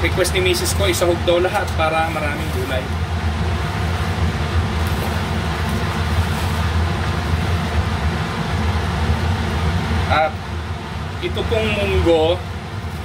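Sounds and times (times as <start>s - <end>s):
kitchen exhaust fan humming: 0.0s - 13.0s
leaves rustling: 3.5s - 7.8s.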